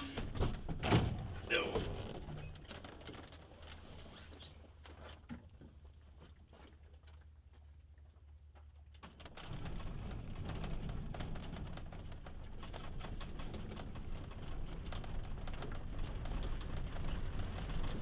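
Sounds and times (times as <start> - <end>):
airframe rattling and knocking: 9.1 - 18.0.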